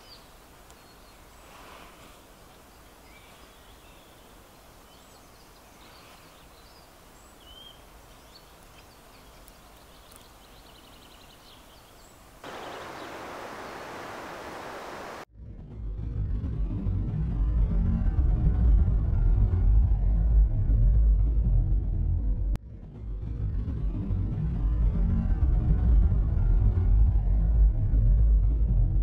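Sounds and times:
faint bird calls and chirps: 0.0s - 15.2s
steady hiss: 0.0s - 15.3s.

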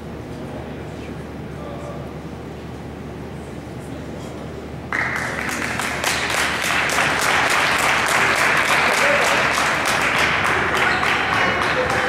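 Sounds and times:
crowd applauding: 4.9s - 12.0s.

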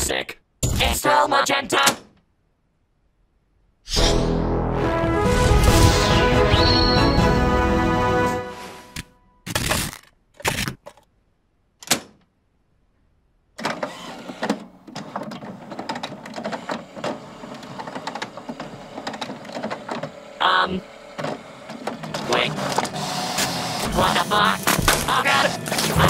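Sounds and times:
cartoon scraping hits: 3.9s - 4.5s, 5.2s - 7.4s
short pitched sound: 3.9s - 8.5s
printer whirring and clattering: 13.6s - 26.0s.

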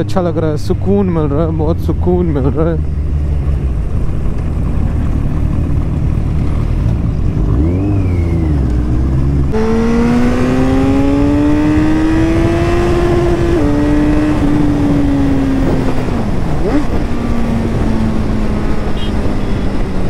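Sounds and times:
motorcycle engine revving: 3.1s - 20.0s
wind rush: 9.5s - 20.0s.

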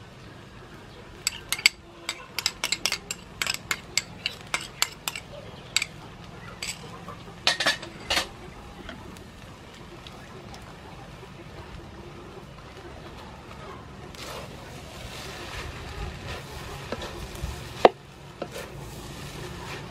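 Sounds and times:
spoon clinking against bowl: 1.3s - 6.0s, 6.6s - 6.9s.

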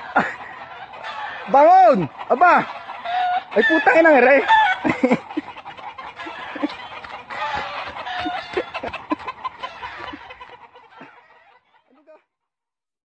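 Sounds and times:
chickens clucking: 0.0s - 12.3s.

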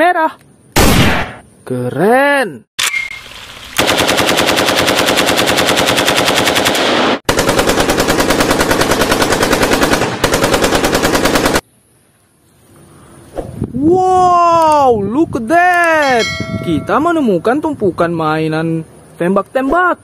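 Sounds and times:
automatic gunfire: 3.8s - 11.6s.

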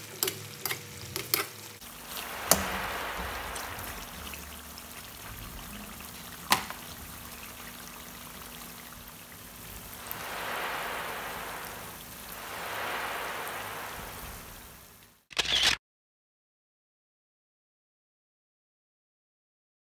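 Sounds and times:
curry sizzling and bubbling in pan: 0.0s - 15.1s.

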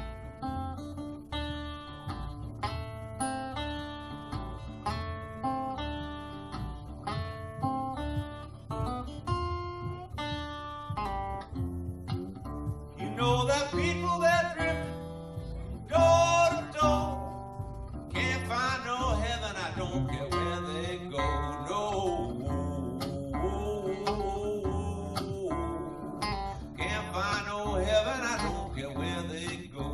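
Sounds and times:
acoustic guitar picking: 0.0s - 29.9s
man singing: 13.0s - 29.9s.

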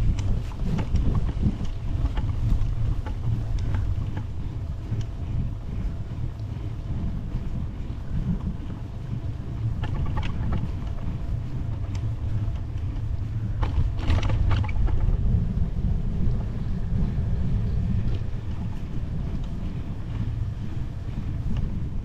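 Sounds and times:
wind buffeting microphone: 0.0s - 22.0s
rattling clicks: 9.6s - 15.2s.

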